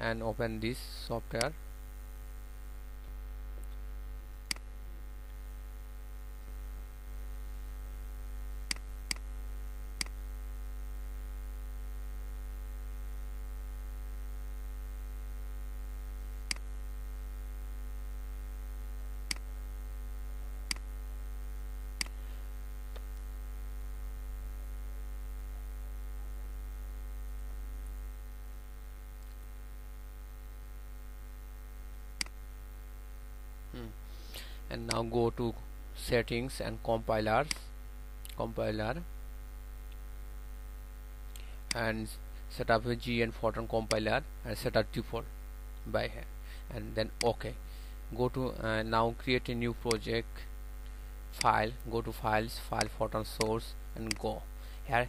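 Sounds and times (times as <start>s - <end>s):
low electrical mains hum: 0.0s - 55.0s
computer mouse clicks: 19.3s - 19.5s.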